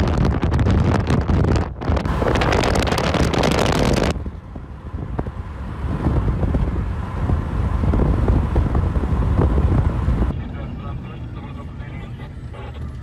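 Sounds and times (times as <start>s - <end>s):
car rumble from inside cabin: 0.0s - 13.0s.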